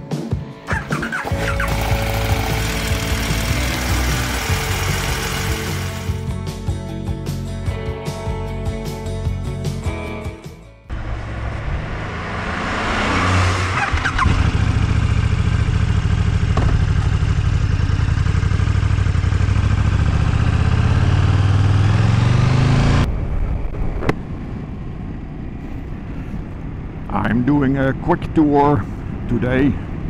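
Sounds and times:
motorcycle engine running: 0.7s - 6.7s, 13.7s - 27.1s.

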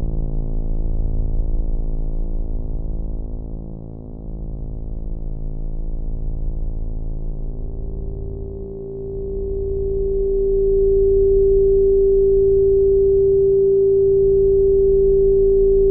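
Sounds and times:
low pulsing droning hum: 0.0s - 15.9s
pure electronic tone: 7.3s - 15.9s.

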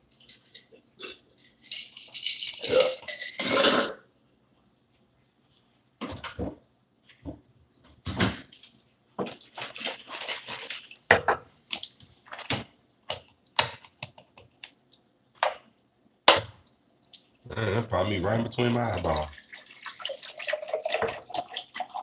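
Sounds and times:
kitchen things clattering: 0.1s - 4.0s, 9.2s - 11.5s.

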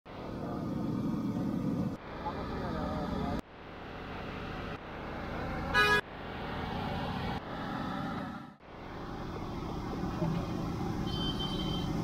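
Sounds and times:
busy market street noise: 0.1s - 12.0s
vehicle horn honk: 5.7s - 6.0s, 11.1s - 12.0s.

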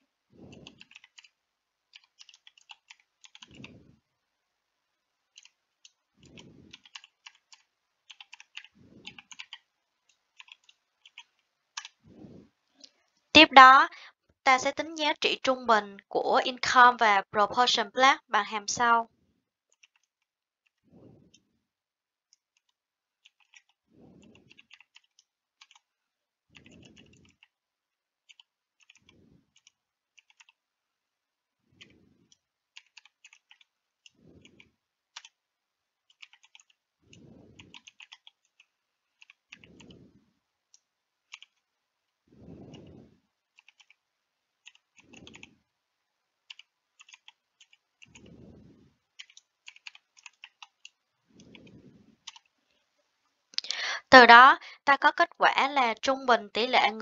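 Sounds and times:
keyboard typing: 0.4s - 3.9s, 5.3s - 12.0s, 19.7s - 21.5s, 22.3s - 25.9s, 26.5s - 27.6s, 28.2s - 30.6s, 31.8s - 35.4s, 36.0s - 40.1s, 40.7s - 41.7s, 42.4s - 44.0s, 44.6s - 45.6s, 46.4s - 48.5s, 49.1s - 52.6s
soft low puff: 42.3s - 43.2s.

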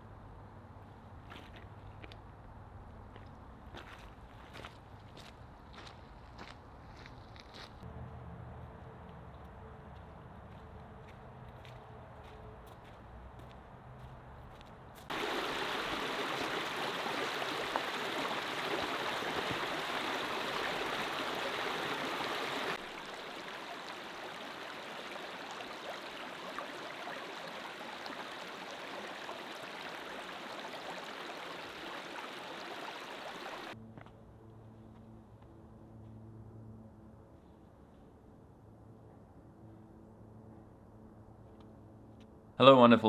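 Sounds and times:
stream water rushing: 15.1s - 33.8s.

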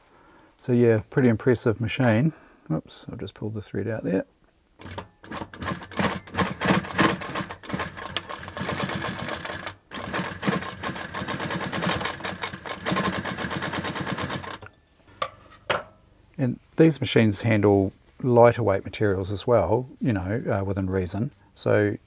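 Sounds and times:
sewing machine clattering: 4.8s - 14.6s.

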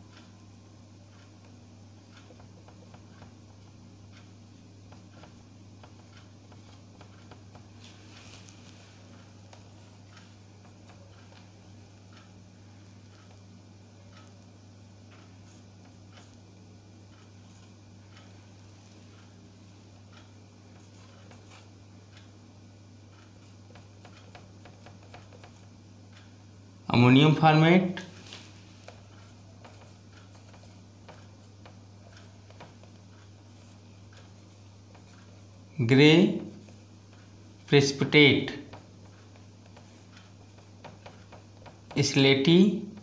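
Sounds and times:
low electrical hum: 0.0s - 43.0s
marker scraping on whiteboard: 28.1s - 35.5s, 38.7s - 42.0s.

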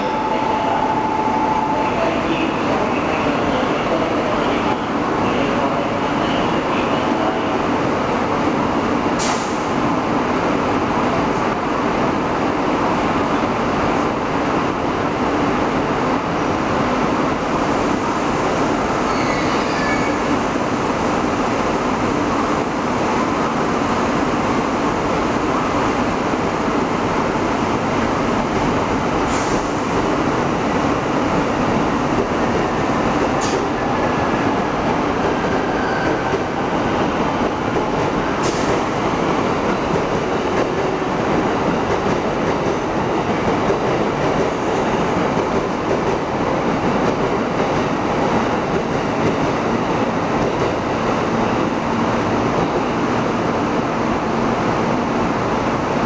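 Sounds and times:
electric train hum and hiss: 0.0s - 56.0s
faint squeals: 19.1s - 20.3s.

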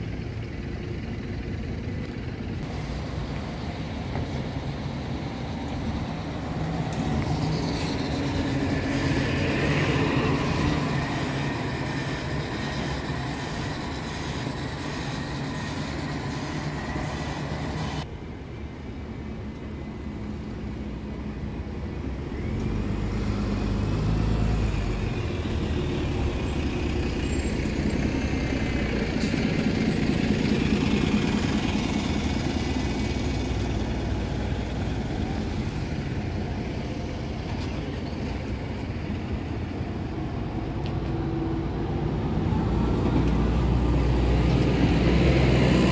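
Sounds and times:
bus engines running: 0.0s - 45.9s.

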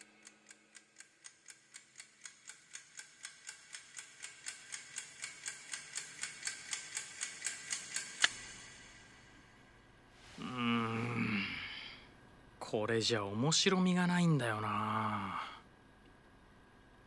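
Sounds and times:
clock ticking fast: 0.0s - 9.3s.

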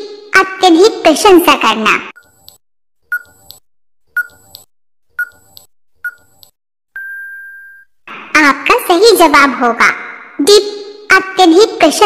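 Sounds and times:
countdown timer beeps: 3.1s - 3.4s, 4.2s - 4.5s, 5.2s - 6.3s.

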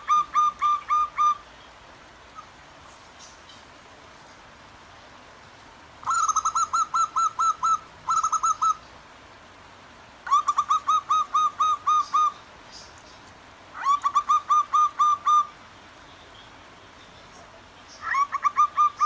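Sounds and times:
dove cooing: 0.0s - 1.4s, 6.0s - 8.8s, 10.3s - 12.4s, 13.8s - 15.5s, 18.0s - 19.0s.

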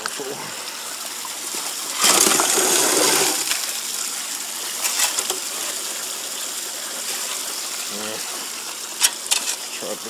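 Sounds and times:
water spraying and rushing: 0.0s - 10.0s
gravel washing down: 1.6s - 6.2s.

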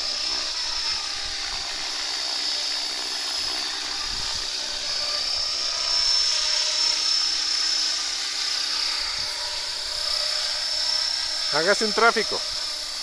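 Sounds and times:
high-pitched motor whine: 0.0s - 13.0s
spinning rotor blades: 0.0s - 13.0s.

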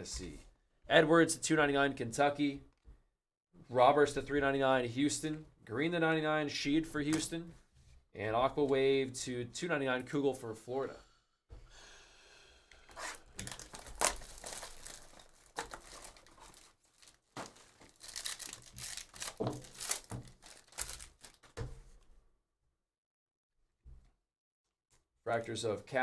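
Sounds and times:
foil wrapper tearing and crinkling: 12.9s - 21.6s.

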